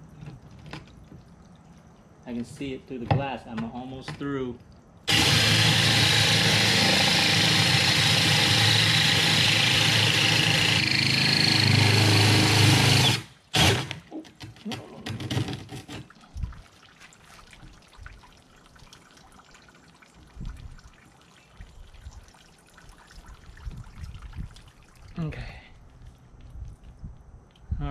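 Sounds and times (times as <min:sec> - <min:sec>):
water dribbling: 0:00.0 - 0:05.1, 0:15.8 - 0:27.2
drill cutting through glass: 0:05.1 - 0:14.0.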